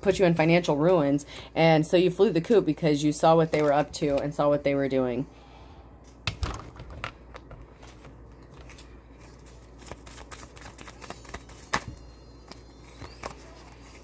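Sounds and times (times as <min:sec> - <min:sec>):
deck of cards shuffling: 0:06.5 - 0:14.0.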